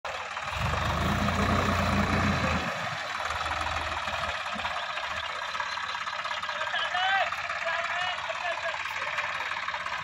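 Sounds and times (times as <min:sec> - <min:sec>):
tractor diesel engine: 0:00.0 - 0:10.0.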